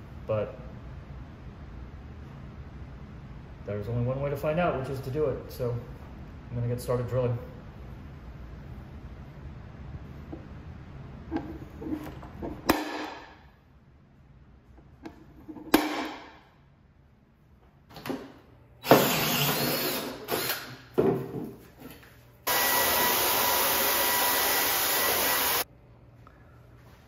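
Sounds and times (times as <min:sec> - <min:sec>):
drill cutting through plastic: 0:18.8 - 0:20.7, 0:22.5 - 0:25.6.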